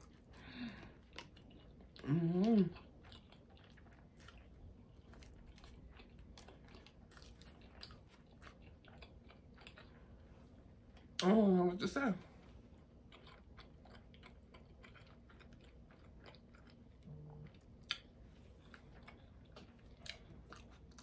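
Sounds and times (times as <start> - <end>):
person chewing food: 0.0 - 11.3, 12.3 - 21.0
person humming mmm: 2.0 - 2.8.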